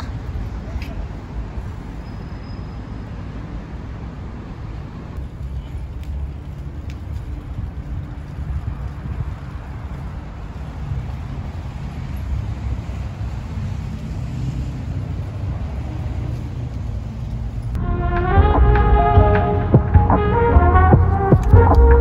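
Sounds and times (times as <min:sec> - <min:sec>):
low outdoor rumble: 0:03.6 - 0:22.0
background music: 0:17.8 - 0:22.0.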